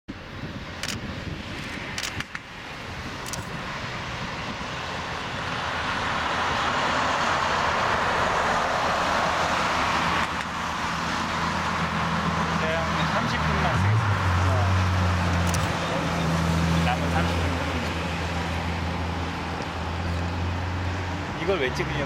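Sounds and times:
jet engines at takeoff power: 0.1 - 14.4.

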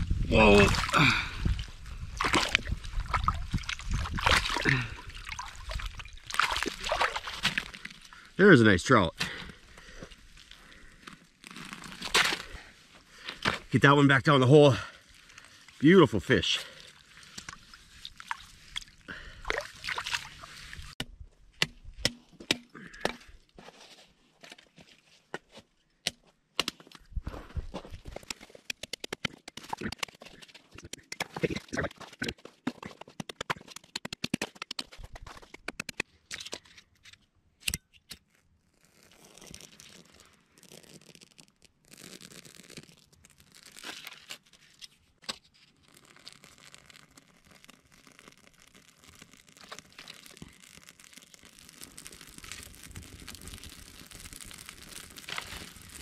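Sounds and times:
water and slush splashing: 0.4 - 1.2, 2.1 - 7.9, 16.4 - 21.0.

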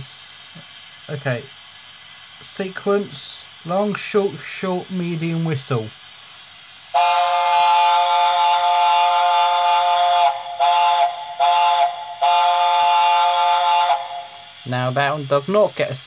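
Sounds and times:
model steam whistle blasts: 6.9 - 14.6.

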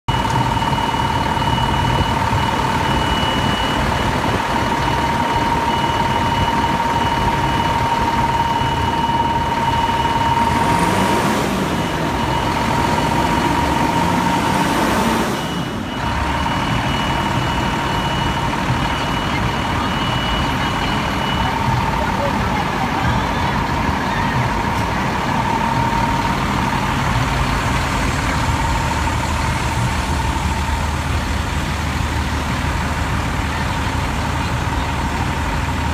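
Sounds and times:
constant high tone: 0.0 - 35.9
diesel engine idling: 0.0 - 35.9.

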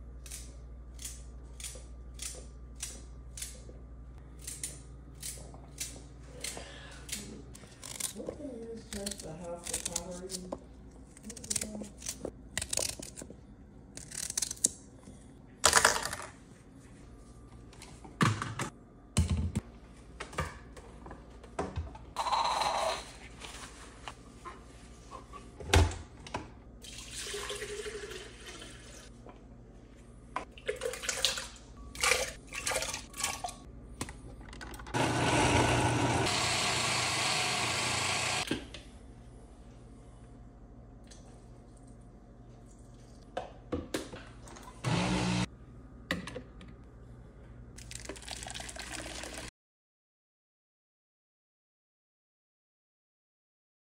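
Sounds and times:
water pouring into blender jar: 26.8 - 28.8, 47.8 - 49.5.

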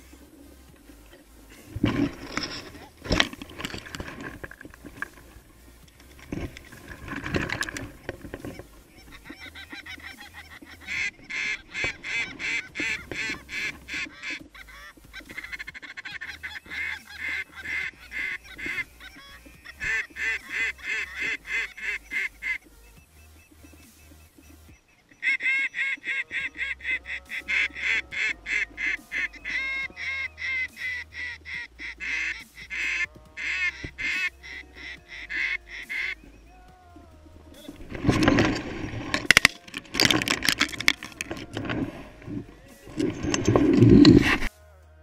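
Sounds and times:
rustling and knocks: 0.8 - 9.4, 37.5 - 44.5
goose honking: 4.2 - 22.8, 24.9 - 36.5.

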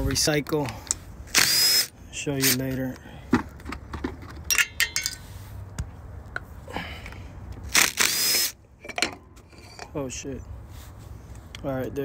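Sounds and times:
metal clinks and scrapes: 4.0 - 5.4, 8.8 - 10.1.

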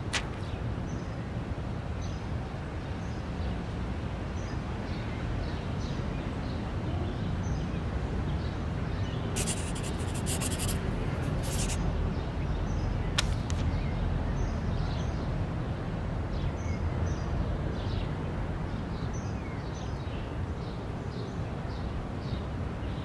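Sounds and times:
pen scratching on paper: 9.4 - 11.8.

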